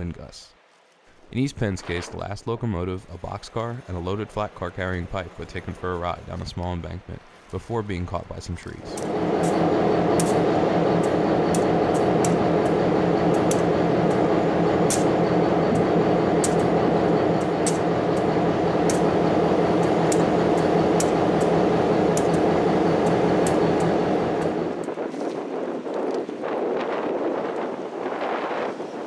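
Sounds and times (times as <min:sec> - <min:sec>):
locomotive engine idling: 0:08.8 - 0:24.9.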